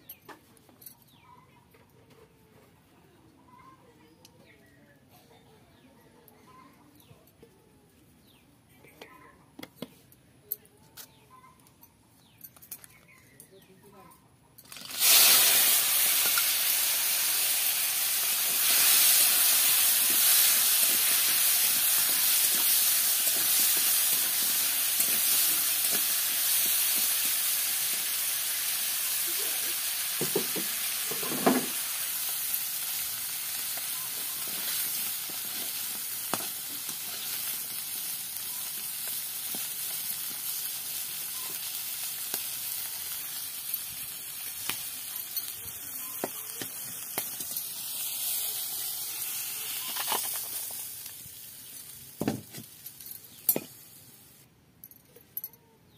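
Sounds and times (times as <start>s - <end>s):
crab sizzling in hot oil: 14.6s - 52.7s.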